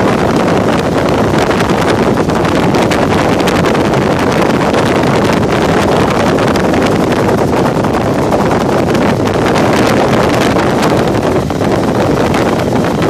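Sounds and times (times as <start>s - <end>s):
helicopter engine and rotor drone: 0.0s - 13.0s
wind buffeting microphone: 0.0s - 13.0s.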